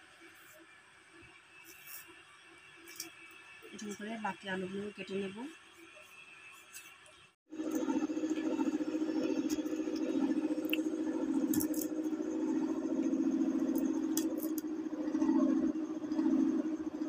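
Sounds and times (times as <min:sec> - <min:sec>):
low machine hum: 0:07.5 - 0:17.0.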